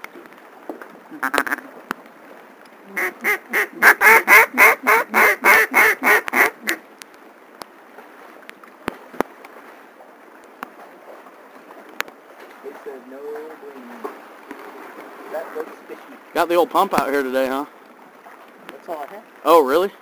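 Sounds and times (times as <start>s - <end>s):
duck call quacks: 3.0s - 6.8s.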